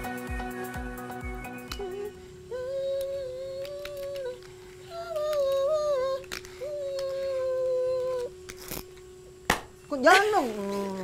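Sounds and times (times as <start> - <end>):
man humming engine imitation: 0.0 - 8.3.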